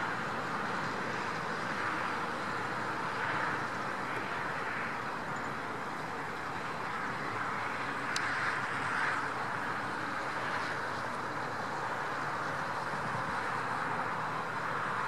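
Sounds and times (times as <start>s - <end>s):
rushing outdoor background noise: 0.0s - 15.0s.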